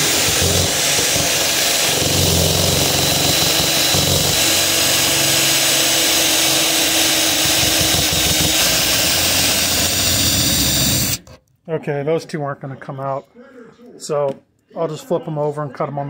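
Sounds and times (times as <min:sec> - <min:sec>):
electric drill drilling metal: 0:00.0 - 0:11.4.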